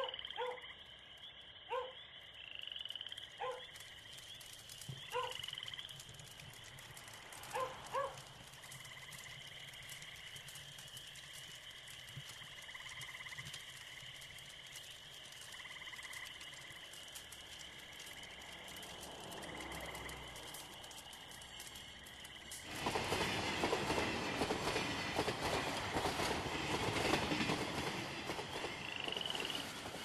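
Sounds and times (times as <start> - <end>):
frog croaks: 0.0 - 4.4, 12.2 - 14.3, 15.3 - 21.5
frogs and insects chirring: 0.0 - 30.0
approaching train rumble: 17.5 - 30.0.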